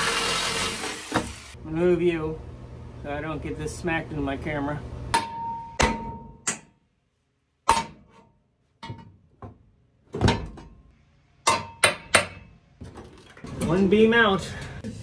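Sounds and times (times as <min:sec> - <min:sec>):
hammer striking metal beam: 0:05.1 - 0:06.8, 0:07.6 - 0:08.2, 0:11.4 - 0:12.5.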